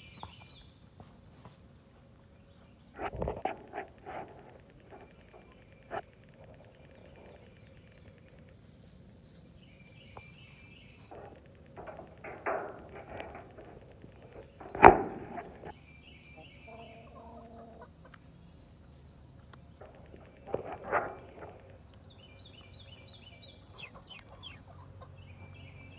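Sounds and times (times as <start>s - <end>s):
chickens clucking: 2.8s - 25.9s.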